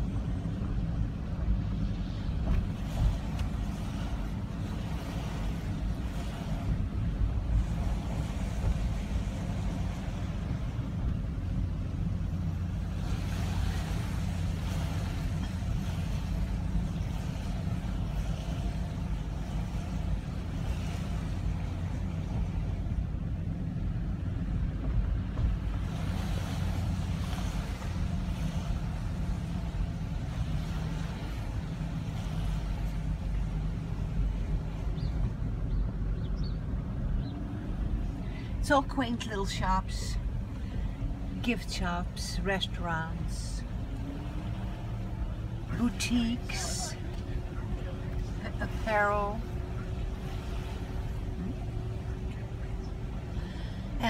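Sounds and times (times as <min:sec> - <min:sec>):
car engine and road rumble: 0:00.0 - 0:54.0.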